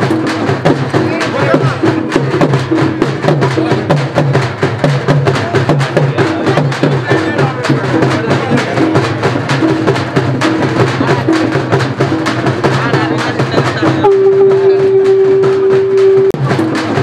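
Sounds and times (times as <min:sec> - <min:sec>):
music with drum beat: 0:00.0 - 0:17.0
long held note: 0:14.0 - 0:16.4.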